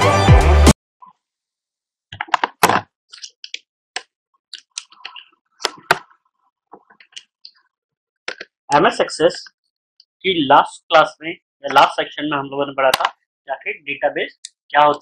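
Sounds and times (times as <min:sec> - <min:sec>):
clicks and taps at computer desk: 0:02.2 - 0:06.1, 0:08.3 - 0:08.6, 0:12.9 - 0:13.2.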